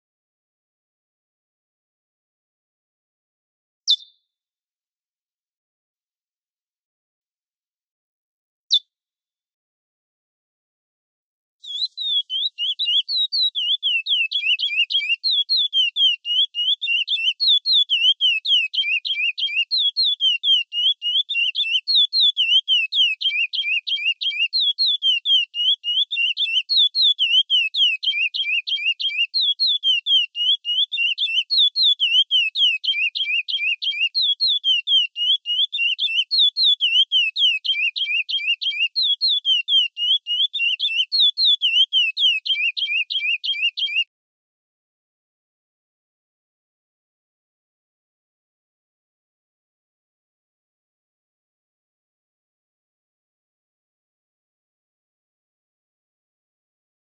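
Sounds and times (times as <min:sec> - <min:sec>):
finch singing whistled notes: 0:03.9 - 0:04.2, 0:11.6 - 0:44.1.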